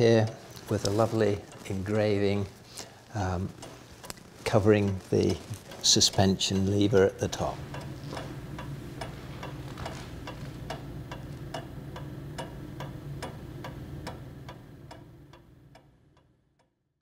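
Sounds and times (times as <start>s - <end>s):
table clock ticking: 3.1s - 16.3s.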